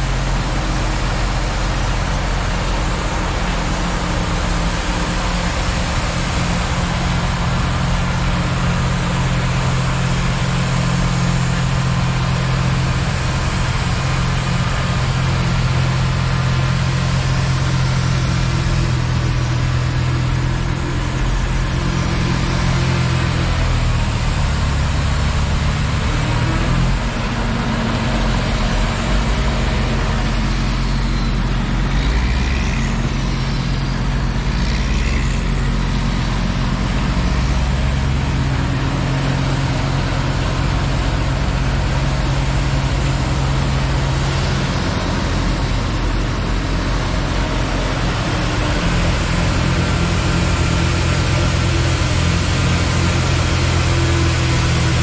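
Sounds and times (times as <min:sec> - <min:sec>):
diesel engine drone: 0:00.0 - 0:55.0.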